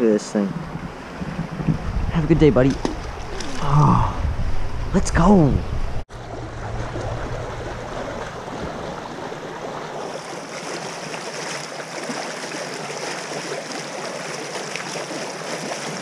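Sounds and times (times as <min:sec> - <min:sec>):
low rumble: 0:00.6 - 0:09.8
water lapping against a dock: 0:06.1 - 0:16.0.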